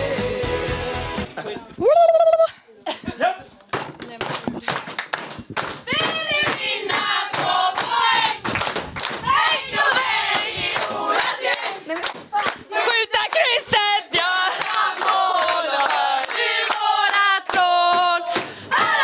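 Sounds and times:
rhythmic clapping: 3.7 - 19.0
women chanting together: 5.9 - 8.4, 9.2 - 19.0.

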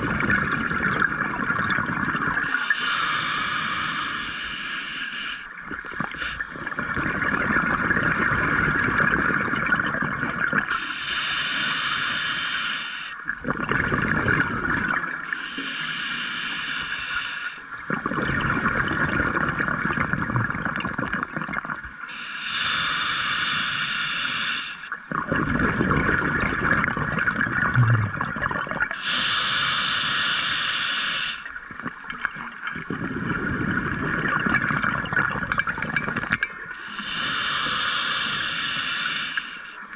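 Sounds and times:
scuba regulator breathing: 2.4 - 6.9, 10.7 - 13.3, 15.2 - 17.8, 22.1 - 25.0, 28.9 - 32.0, 35.5 - 39.9
bubbling exhale: 13.4 - 39.8.

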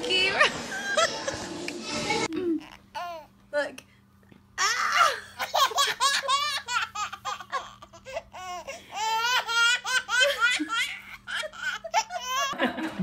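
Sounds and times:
baby laughing: 4.6 - 12.6.

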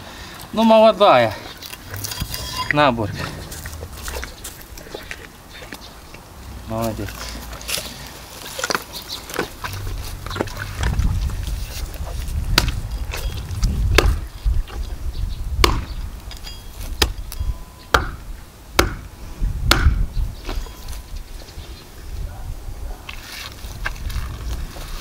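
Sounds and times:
axe chopping on wooden stump: 12.6 - 12.8, 13.9 - 14.3, 15.6 - 16.0, 16.9 - 17.3, 17.9 - 18.2, 18.8 - 19.1, 19.7 - 20.1.

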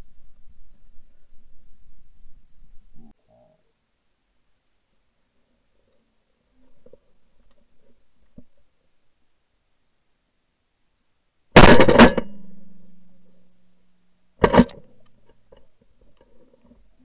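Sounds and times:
shotgun blasts: 11.6 - 12.5.

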